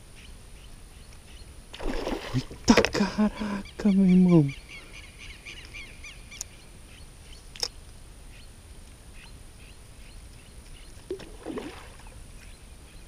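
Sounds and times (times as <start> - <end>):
faint bird chirps: 3.4 - 11.3.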